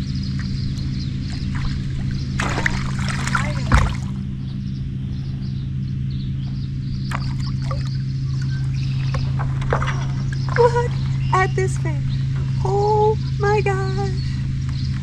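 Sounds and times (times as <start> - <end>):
steady low hum: 0.0 - 15.0
water splashing against kayak: 1.4 - 4.2.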